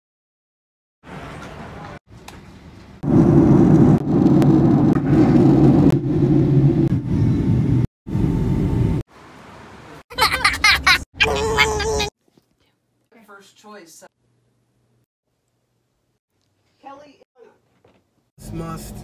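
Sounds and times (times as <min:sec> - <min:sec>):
girl laughing: 0:10.1 - 0:12.1.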